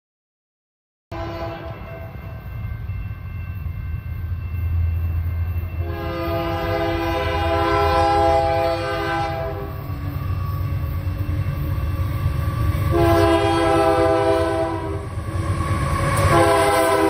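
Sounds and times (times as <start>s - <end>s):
locomotive air horn: 1.1s - 2.0s, 5.8s - 9.9s, 12.9s - 15.1s, 16.2s - 17.0s
low train rumble: 1.1s - 17.0s.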